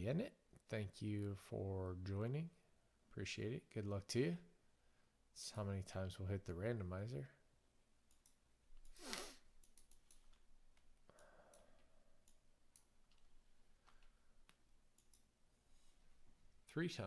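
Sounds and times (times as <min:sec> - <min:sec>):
short breath: 0:09.0 - 0:09.5, 0:11.1 - 0:12.1
keyboard and mouse clicks: 0:09.6 - 0:15.3.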